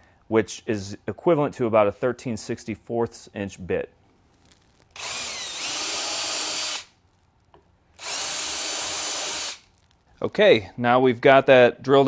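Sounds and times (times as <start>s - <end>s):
cordless drill boring wood: 5.0s - 6.9s, 8.0s - 9.7s.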